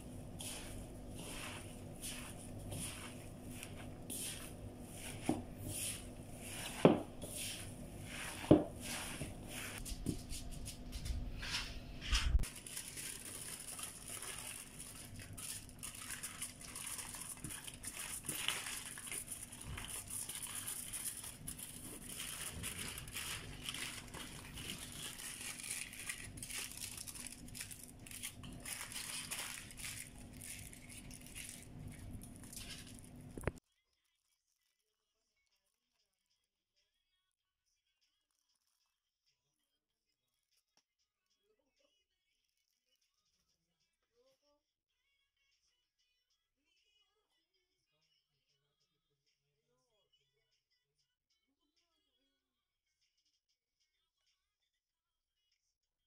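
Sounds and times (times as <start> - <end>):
hands squishing meat mixture: 0.0 - 9.9, 12.4 - 33.6
aluminium foil crinkling: 12.3 - 34.8.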